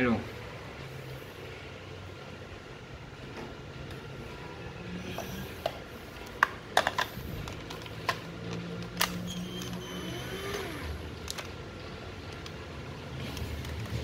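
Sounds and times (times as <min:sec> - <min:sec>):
faint drill whine: 0:04.7 - 0:06.1, 0:09.2 - 0:11.2.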